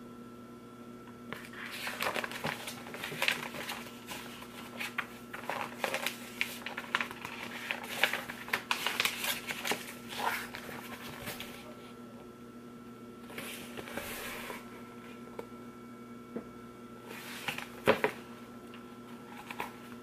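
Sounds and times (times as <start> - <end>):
magazine pages rustling: 1.3 - 11.8, 17.1 - 18.2, 19.2 - 20.0.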